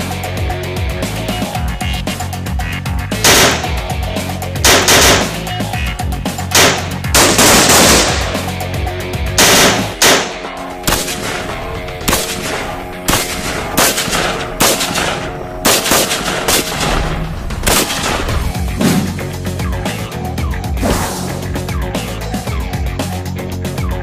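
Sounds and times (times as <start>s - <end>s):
background music: 0.0s - 24.0s
rifle gunfire: 3.2s - 3.9s, 4.6s - 5.4s, 6.5s - 8.5s, 9.3s - 18.6s.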